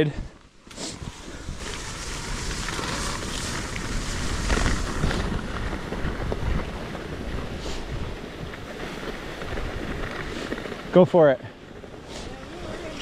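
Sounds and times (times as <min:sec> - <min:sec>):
wind buffeting microphone: 0:00.9 - 0:10.9.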